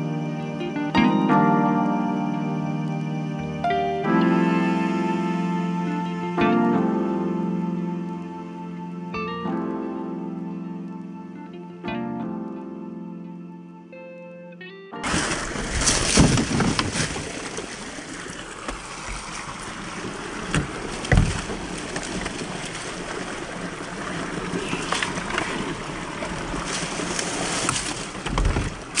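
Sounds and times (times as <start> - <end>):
stream running over rock: 15.0 - 29.0
knocks and rustles of brush: 15.1 - 17.8.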